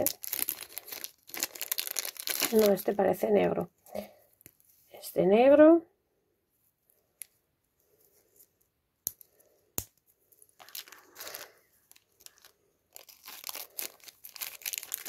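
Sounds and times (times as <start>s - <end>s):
plastic bags crinkling: 0.0s - 3.2s, 10.3s - 15.0s.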